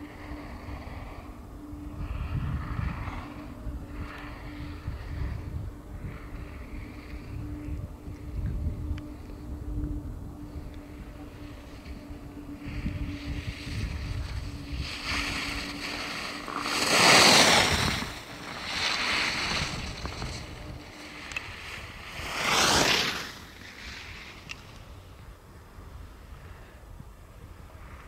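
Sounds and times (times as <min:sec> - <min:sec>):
wind rumbling on microphone: 0:00.0 - 0:28.0
skis scraping on packed snow: 0:12.6 - 0:25.2.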